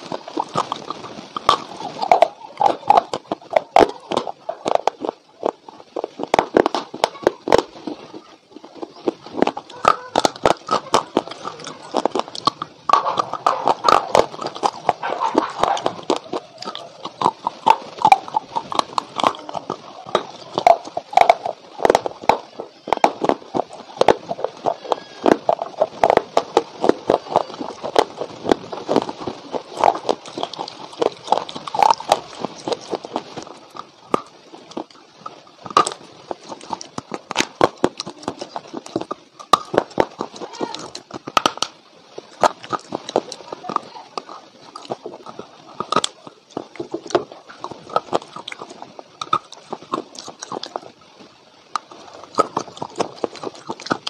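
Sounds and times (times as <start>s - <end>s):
clay cracking between teeth: 0.0s - 51.0s, 51.6s - 54.0s
chewing crunches: 0.0s - 54.0s.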